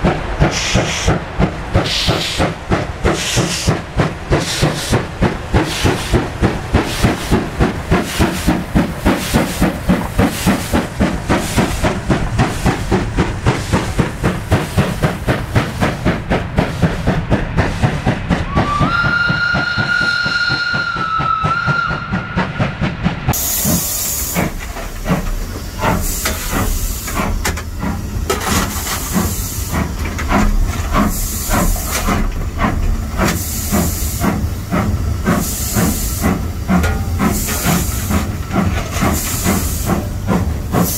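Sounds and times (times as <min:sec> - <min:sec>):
steam hissing: 0:00.0 - 0:40.9
steam locomotive exhaust chuffs: 0:00.0 - 0:40.9
steam whistle: 0:18.5 - 0:22.5.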